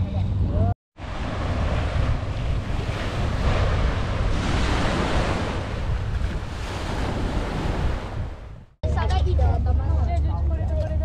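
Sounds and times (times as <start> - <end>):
wind buffeting microphone: 0.2 - 9.0
small waves on sandy beach: 1.0 - 8.6.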